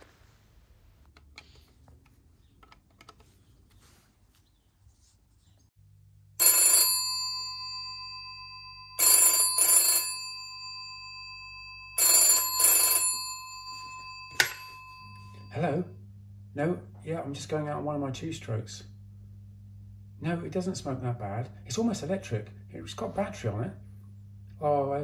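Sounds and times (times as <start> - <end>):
telephone bell ringing: 6.4 - 15.6.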